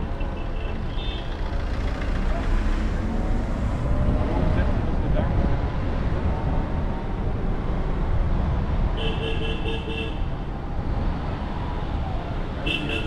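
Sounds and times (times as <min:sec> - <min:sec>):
vehicle horn: 0:09.0 - 0:10.2, 0:12.6 - 0:13.0.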